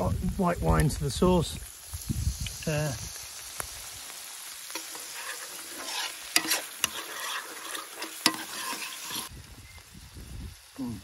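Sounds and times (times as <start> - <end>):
shrimps sizzling in a pan: 0.0 - 11.0
metal spoon clinking on pan: 5.9 - 9.3.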